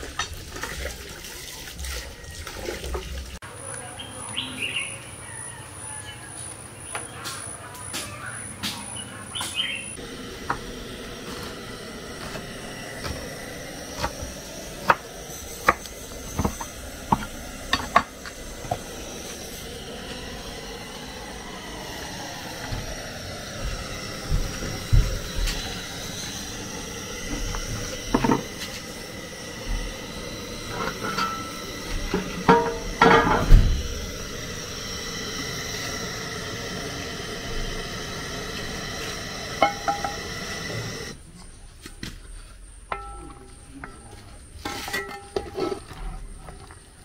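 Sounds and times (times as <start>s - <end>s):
steady hiss: 8.7s - 41.4s
bowls and utensils clinking: 42.9s - 46.0s.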